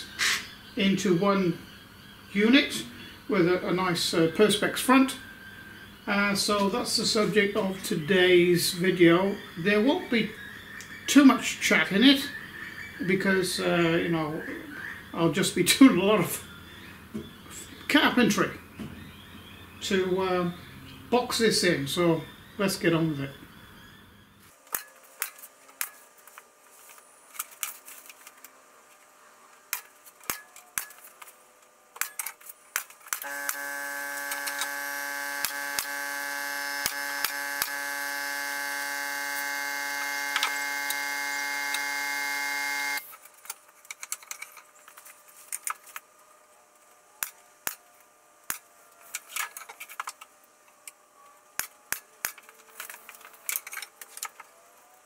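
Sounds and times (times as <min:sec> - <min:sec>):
pneumatic nail gun shots: 0:32.0 - 0:43.1
air compressor running: 0:33.1 - 0:43.2.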